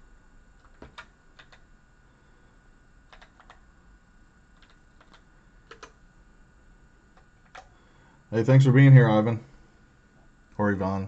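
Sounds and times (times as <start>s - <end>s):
keyboard keys clicking: 0.6s - 1.6s, 3.1s - 3.6s, 4.6s - 6.0s, 7.2s - 7.7s.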